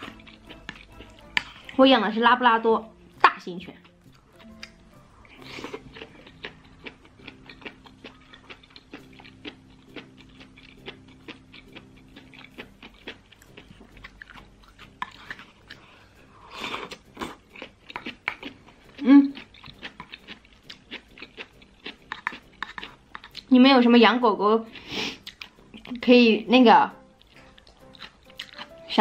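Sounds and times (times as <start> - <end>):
close chewing mouth sounds: 0.0 - 1.9, 3.7 - 23.5, 24.7 - 26.0, 27.2 - 29.0.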